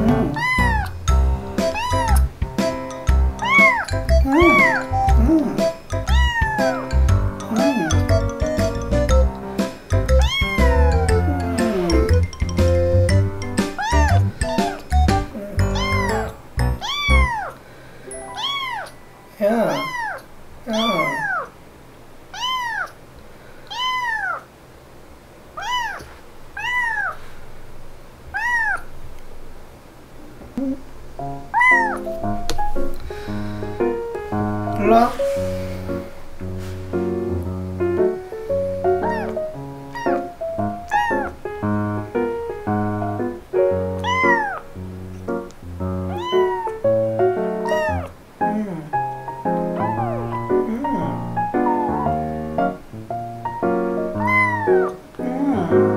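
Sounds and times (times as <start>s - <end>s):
kitten meowing: 0.0s - 1.1s, 1.7s - 2.3s, 3.4s - 8.2s, 10.0s - 12.3s, 13.8s - 17.6s, 18.3s - 19.0s, 19.6s - 21.5s, 22.3s - 23.0s, 23.7s - 24.4s, 25.6s - 27.2s, 28.3s - 28.9s, 31.5s - 32.1s, 39.0s - 41.4s, 44.0s - 44.7s, 46.1s - 46.9s, 47.6s - 48.2s, 49.6s - 52.2s, 54.1s - 55.8s
background piano music: 0.0s - 21.2s, 30.9s - 55.9s.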